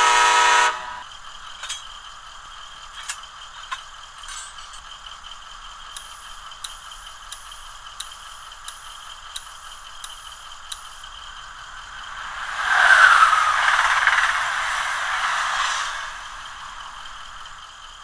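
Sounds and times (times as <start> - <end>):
model locomotive running sound: 0.0 - 18.0
windshield wiper ticks: 6.0 - 11.0
whoosh of rushing air: 11.9 - 17.4.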